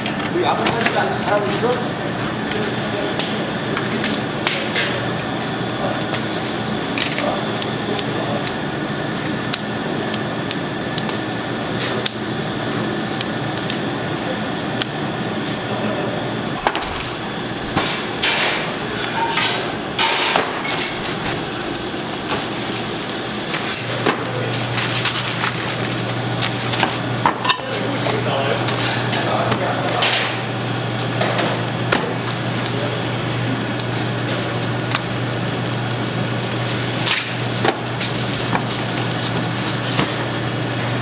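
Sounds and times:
steady noisy hum: 0.0 - 41.0
firewood cracking: 16.6 - 41.0.

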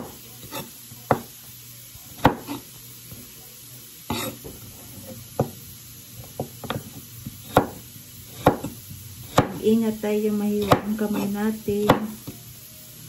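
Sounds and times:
knife chopping on wooden board: 0.0 - 1.3, 2.2 - 2.6, 4.1 - 5.6, 6.2 - 9.6, 10.6 - 12.4.

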